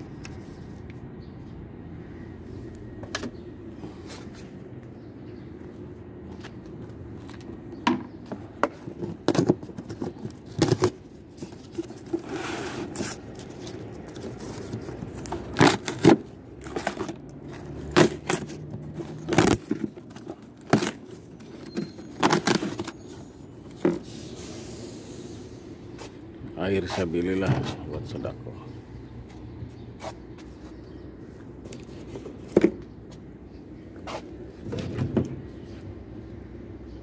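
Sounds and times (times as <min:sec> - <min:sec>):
cardboard carton torn open: 0:09.1 - 0:17.2, 0:17.8 - 0:23.0
scratchy cardboard tearing: 0:11.8 - 0:17.1, 0:17.8 - 0:19.9
steady low hum: 0:23.2 - 0:37.0.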